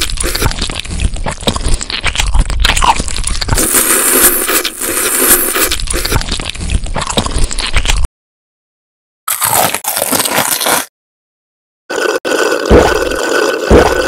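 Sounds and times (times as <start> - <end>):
wet chewing and smacking: 0.0 - 3.6, 5.7 - 8.1
noodle slurp: 1.5 - 6.4, 11.9 - 14.0.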